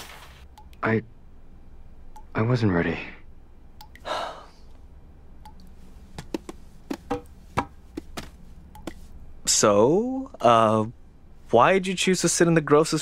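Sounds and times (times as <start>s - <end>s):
low room hum: 0.0s - 13.0s
breathy sigh: 4.0s - 4.7s
footsteps on hard floor: 6.2s - 9.0s.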